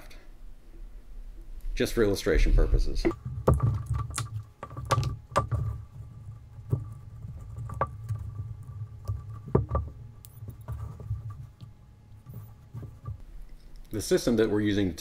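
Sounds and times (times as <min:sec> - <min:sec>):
low handling rumble: 0:01.0 - 0:03.2.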